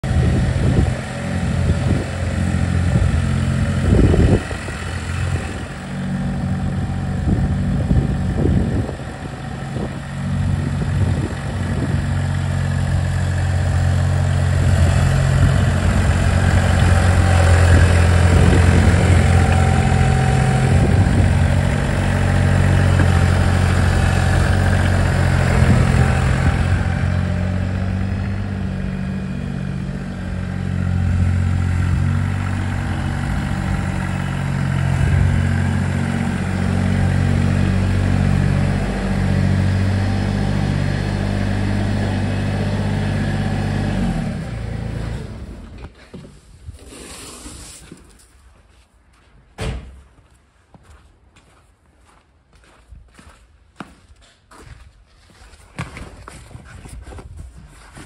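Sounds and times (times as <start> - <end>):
tractor diesel engine running: 0.0 - 45.9.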